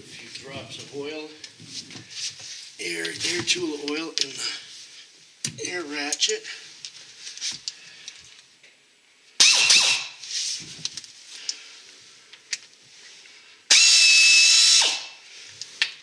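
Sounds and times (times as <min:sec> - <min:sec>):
air ratchet whine: 0:09.4 - 0:10.2, 0:13.7 - 0:15.2.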